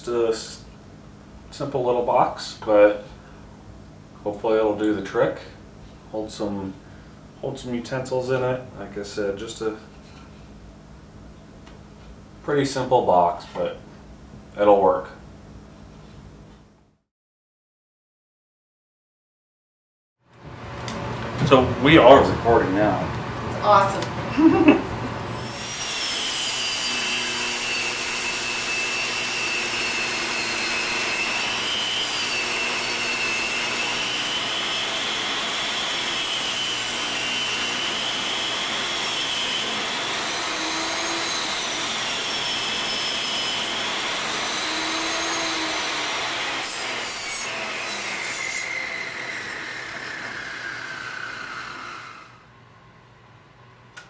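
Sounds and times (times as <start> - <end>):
table saw blade whine: 24.4 - 52.6.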